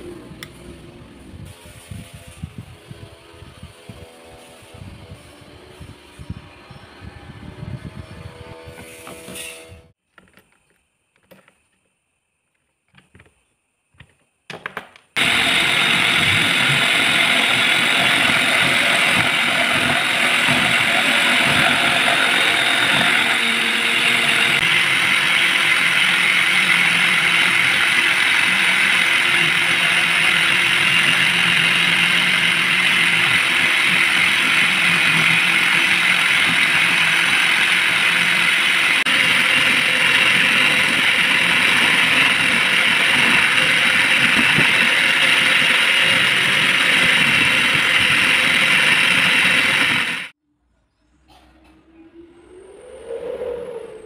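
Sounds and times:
lathe running: 15.2s - 50.3s.

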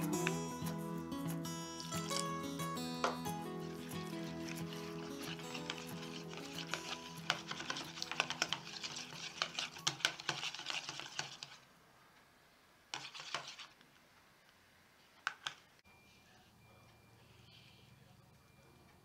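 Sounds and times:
whisk beating batter in bowl: 3.5s - 11.6s, 12.9s - 13.8s.

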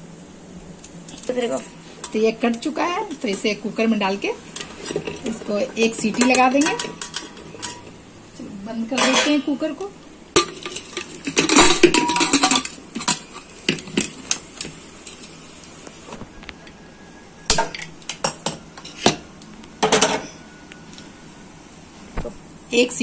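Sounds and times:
metal lid scraping and clanking: 4.4s - 7.9s, 10.4s - 14.4s.

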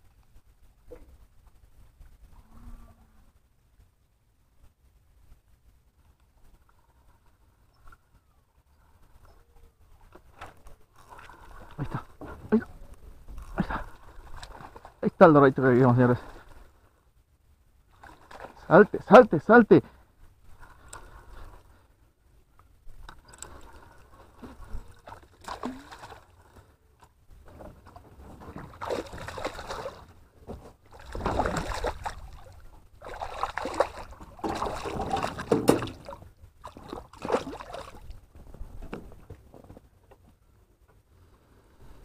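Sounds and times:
water splashing: 10.0s - 12.7s, 13.4s - 16.7s, 17.9s - 19.2s, 23.0s - 26.7s, 27.8s - 38.3s.

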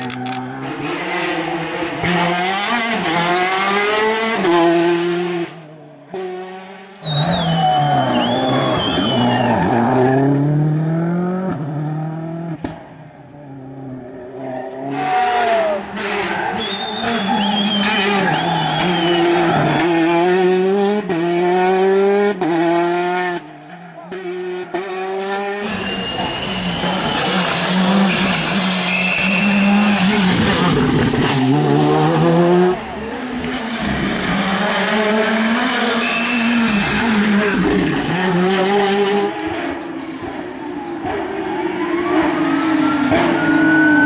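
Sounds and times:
rally car engines racing past: 0.4s - 44.0s
tyres squealing: 15.2s - 20.1s.

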